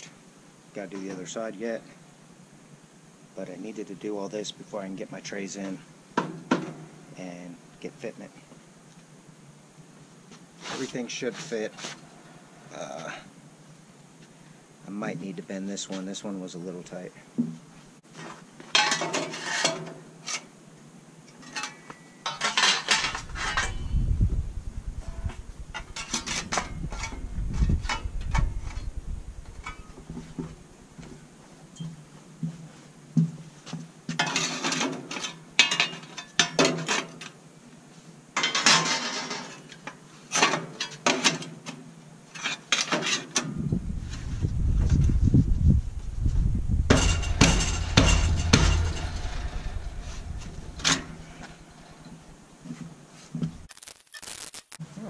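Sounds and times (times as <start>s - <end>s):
sheet metal clanking and scraping: 22.3s - 24.0s, 46.7s - 52.8s
low rumble: 23.1s - 25.8s, 26.8s - 30.0s, 43.7s - 53.7s.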